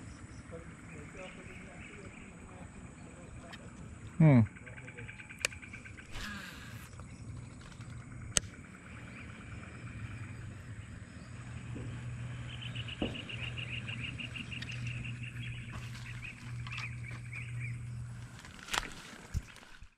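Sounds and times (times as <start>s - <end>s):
insects chirping in pulses: 0.0s - 19.6s
steady low hum: 0.0s - 19.9s
knocks: 13.0s - 13.5s.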